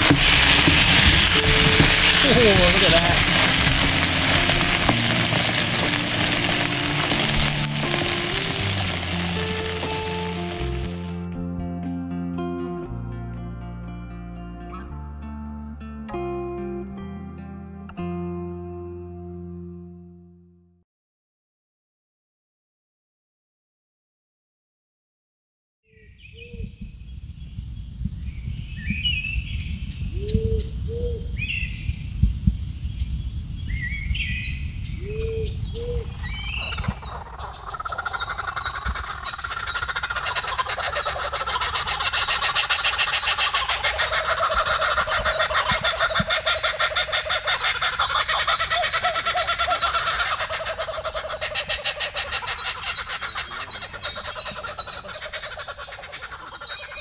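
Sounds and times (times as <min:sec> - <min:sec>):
frog chorus: 0:00.0 - 0:11.2, 0:34.9 - 0:57.0
bird chirps: 0:25.9 - 0:57.0
short rising bird calls: 0:33.7 - 0:57.0.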